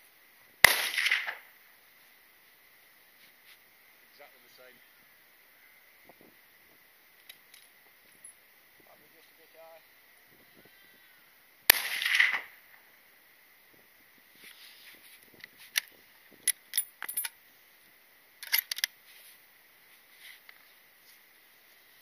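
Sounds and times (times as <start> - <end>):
rifle shot with echo: 0.6 - 1.4, 11.7 - 12.5.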